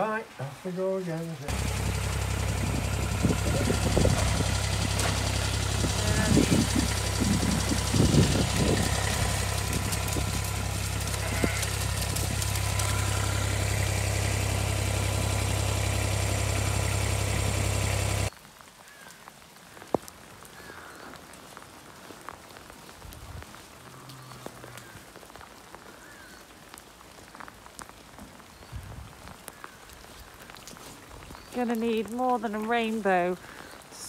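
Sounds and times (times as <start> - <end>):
rain falling: 0.0 - 34.0
diesel engine running: 1.5 - 18.3.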